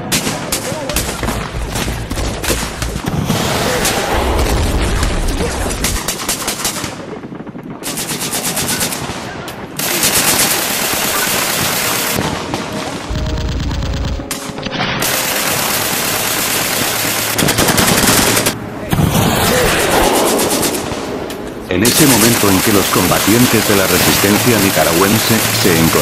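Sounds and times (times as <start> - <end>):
automatic gunfire: 7.8 - 18.6.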